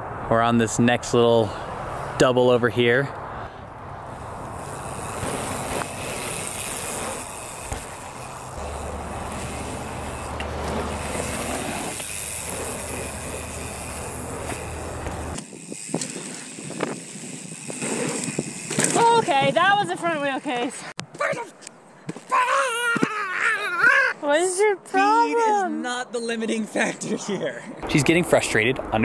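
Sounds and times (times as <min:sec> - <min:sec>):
bike rushing noise with low rumble: 0:00.0 - 0:20.2
bike clicks and rattles: 0:04.1 - 0:23.4
tyres rolling on dirt: 0:04.2 - 0:21.4.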